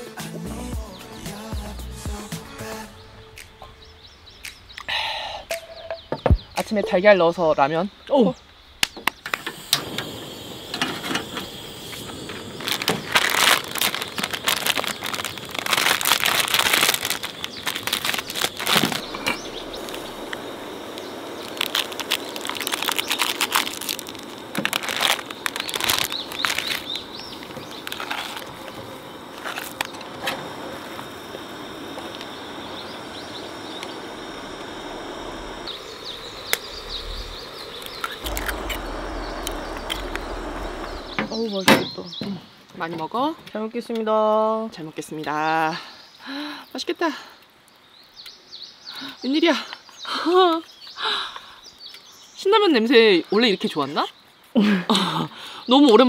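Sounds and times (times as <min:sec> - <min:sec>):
steady rushing hiss: 0:00.0 - 0:42.6
plastic packets crinkling and tearing: 0:12.5 - 0:28.8, 0:29.4 - 0:30.0.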